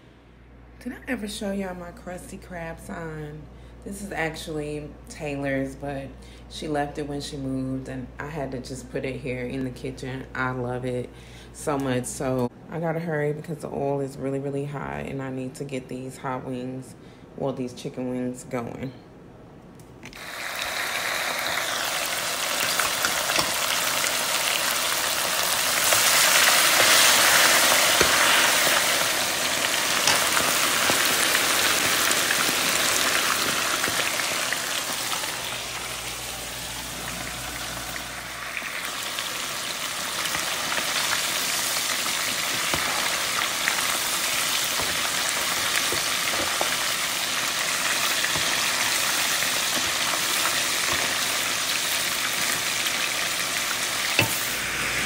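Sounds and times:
chicken wings sizzling in hot oil: 0:20.2 - 0:55.0.

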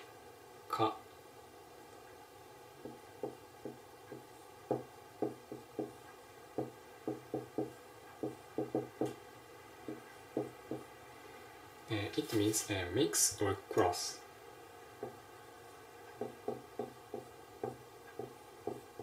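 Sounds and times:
marker pen tapping on whiteboard: 0:02.8 - 0:06.0, 0:06.6 - 0:09.2, 0:09.8 - 0:10.9, 0:15.0 - 0:15.2, 0:16.1 - 0:19.0.

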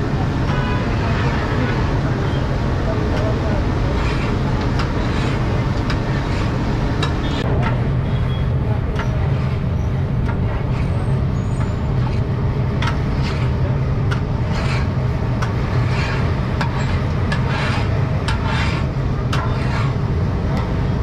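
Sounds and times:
metal spatula scraping wok: 0:00.2 - 0:02.6, 0:03.3 - 0:20.2.

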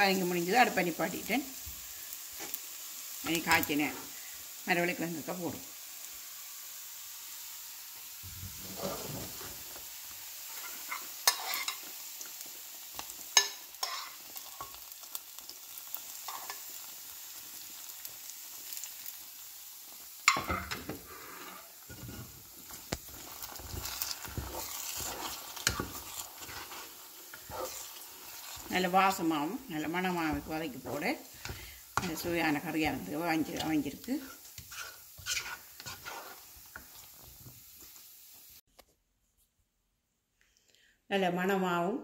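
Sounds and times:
light oil sizzle: 0:00.0 - 0:38.7
food scraped from frying pan: 0:08.5 - 0:09.7, 0:10.5 - 0:11.8, 0:20.6 - 0:28.7, 0:34.2 - 0:37.4
wooden spoon stirring curry: 0:34.3 - 0:37.3.

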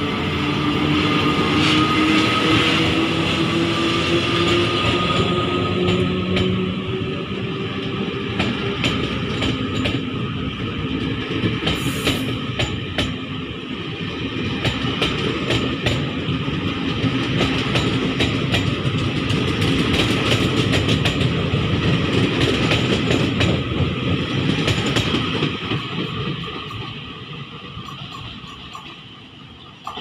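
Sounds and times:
electric locomotive whine: 0:00.0 - 0:30.0
wheels clicking over rail joints: 0:27.7 - 0:30.0.

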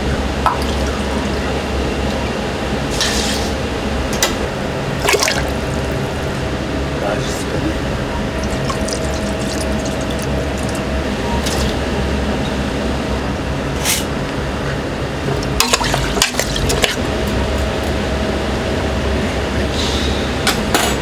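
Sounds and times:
steady low hum: 0:00.0 - 0:21.0
liquid pouring: 0:00.4 - 0:01.3, 0:05.0 - 0:06.0, 0:08.4 - 0:11.8.

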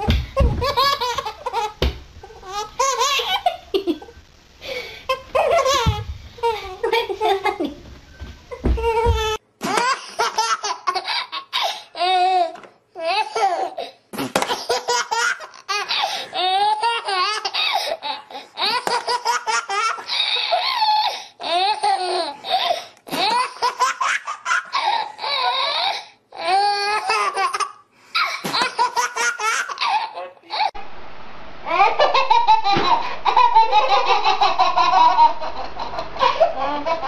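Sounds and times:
baby laughing: 0:00.0 - 0:04.1, 0:05.1 - 0:07.6, 0:08.8 - 0:22.2, 0:26.7 - 0:30.8, 0:31.7 - 0:37.0.

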